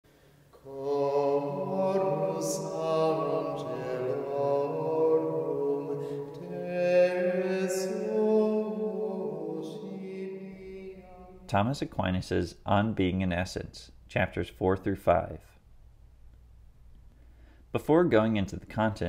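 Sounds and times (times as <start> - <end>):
voices singing slow chant: 0.5 - 11.5.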